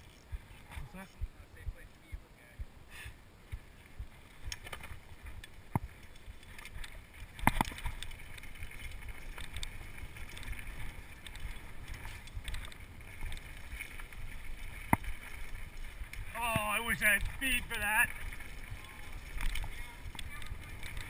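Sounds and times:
bike tyres and frame rattling: 4.4 - 21.0.

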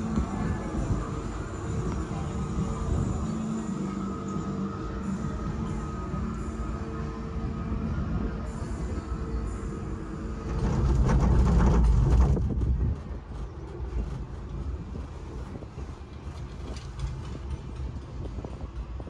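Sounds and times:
cable car rumbling clatter: 7.9 - 19.0.

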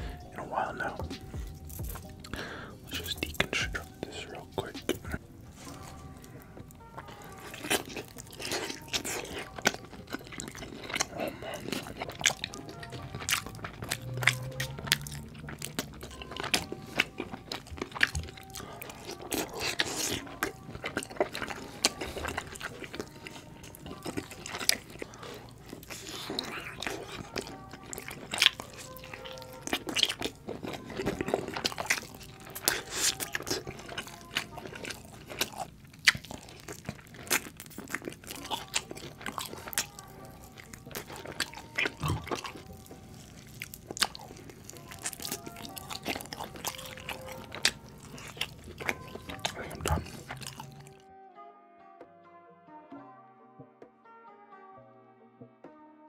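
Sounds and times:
mouth smacks and clicks: 0.0 - 51.0
close-miked eating and chewing: 0.0 - 51.1
background music: 0.0 - 56.0.

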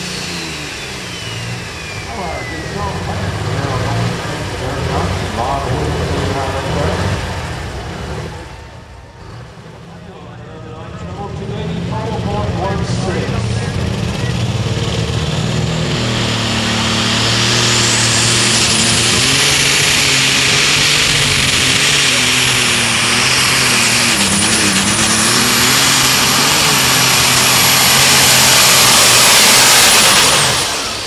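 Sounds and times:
tractor engine at full throttle: 0.0 - 31.0
turbocharger whine: 0.0 - 31.0.

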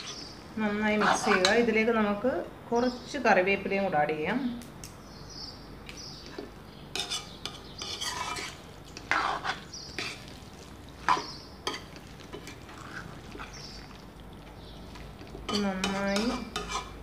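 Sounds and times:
metal spoon scraping a pan: 0.0 - 1.7, 6.3 - 10.4, 11.0 - 13.8, 15.2 - 17.0.

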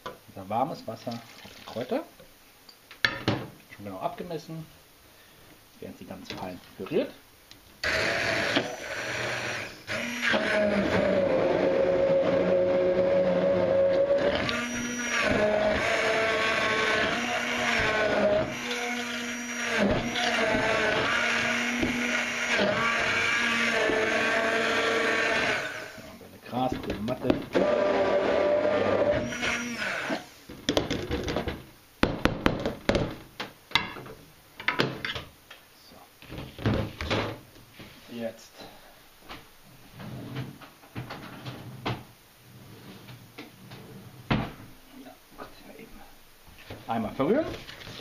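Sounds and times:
immersion blender running: 7.8 - 26.1, 27.6 - 30.3
knocks and clicks of blender parts: 30.5 - 35.3.

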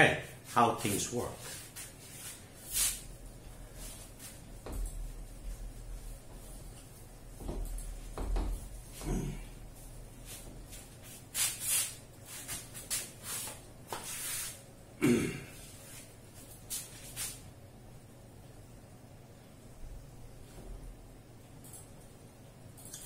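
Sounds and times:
eraser swishing on whiteboard: 1.4 - 3.2, 10.2 - 14.6, 15.8 - 17.5
dull knocks: 7.4 - 8.7.

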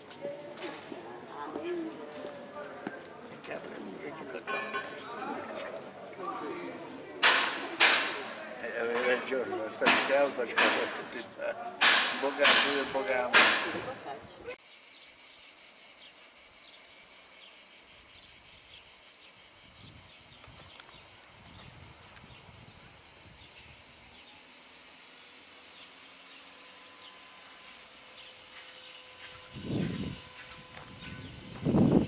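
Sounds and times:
insects chirring: 14.6 - 32.0.

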